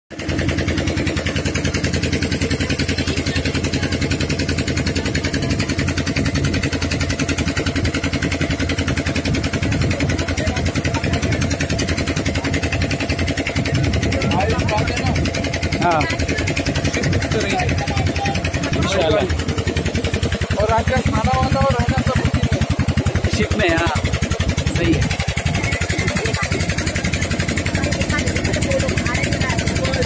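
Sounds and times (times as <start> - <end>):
boat engine running: 0.1 - 30.0
water splashing along hull: 0.1 - 30.0.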